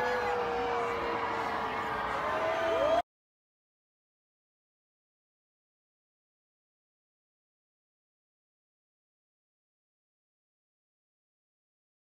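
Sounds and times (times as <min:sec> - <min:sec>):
crowd cheering: 0:00.0 - 0:03.1.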